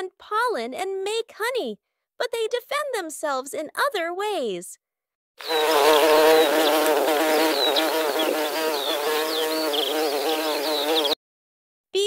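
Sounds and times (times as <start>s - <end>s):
insects buzzing: 5.4s - 11.2s.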